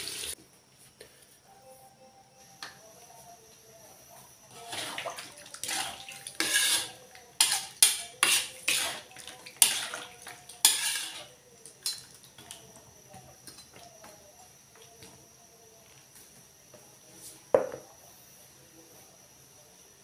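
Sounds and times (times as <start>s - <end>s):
metal ladle scraping a wok: 4.5s - 5.0s, 5.6s - 11.3s.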